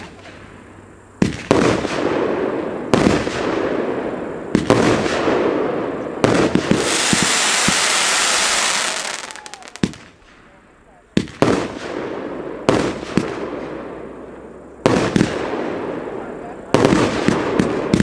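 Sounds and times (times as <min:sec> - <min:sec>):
firework shells bursting: 0:06.2 - 0:10.4
hissing rush of sparks: 0:06.4 - 0:10.0.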